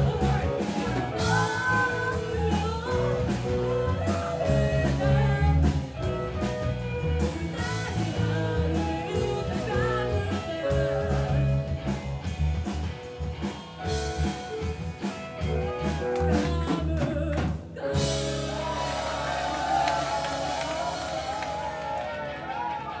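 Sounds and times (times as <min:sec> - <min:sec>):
woman singing: 0:00.0 - 0:11.6, 0:15.6 - 0:19.1
drum kit beat: 0:00.0 - 0:23.0
electric bass: 0:00.0 - 0:23.0
keyboard: 0:00.0 - 0:23.0.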